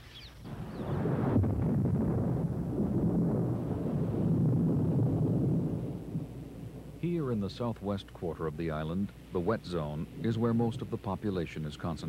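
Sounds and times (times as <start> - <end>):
rolling thunder: 0.5 - 7.2.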